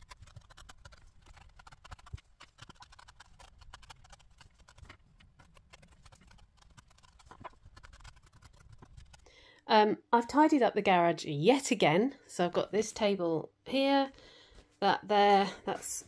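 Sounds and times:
felting needle poking wool: 0.0 - 9.3.

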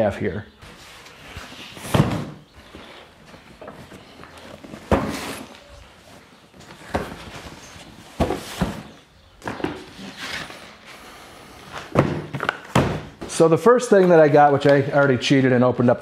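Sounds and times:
cardboard boxes thudding on concrete: 1.7 - 2.5, 4.6 - 5.6, 6.6 - 10.2, 11.8 - 13.4.

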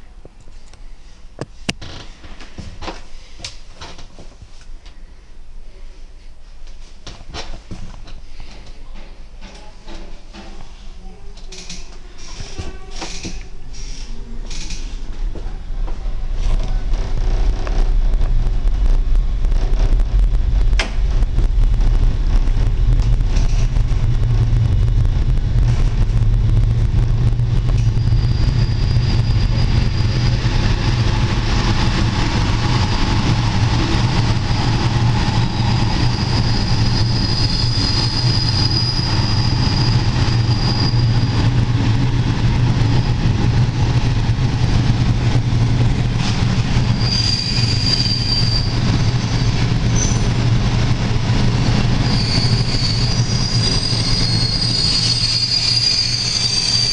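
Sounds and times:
train running gear rumble: 6.6 - 56.9
high wheel squeal: 27.8 - 30.5, 35.5 - 41.4, 46.9 - 50.3, 52.0 - 56.9.

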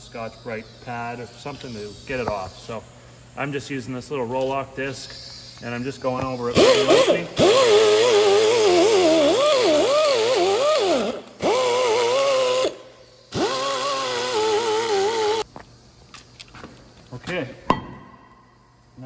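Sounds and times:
pneumatic grinder whining: 6.3 - 15.5.

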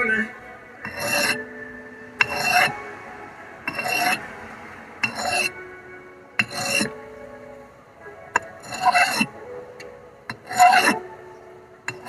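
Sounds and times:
sharpening stone rasping on blade: 0.8 - 1.4, 2.2 - 2.7, 3.7 - 4.2, 5.0 - 5.6, 6.4 - 6.9, 8.6 - 9.3, 10.3 - 11.0.

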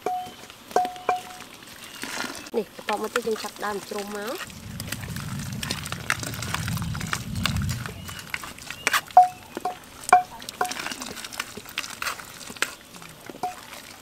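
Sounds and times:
water dripping: 0.0 - 14.0
low rumble: 4.4 - 10.5.

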